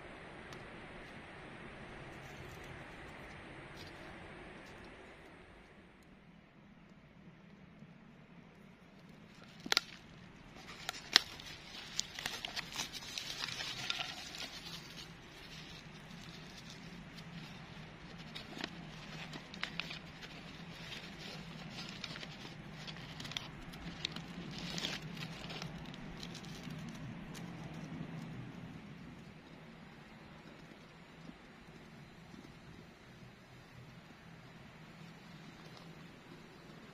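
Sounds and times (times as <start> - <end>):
campfire crackling and popping: 9.1 - 36.9
plastic packaging crinkling: 10.6 - 26.9.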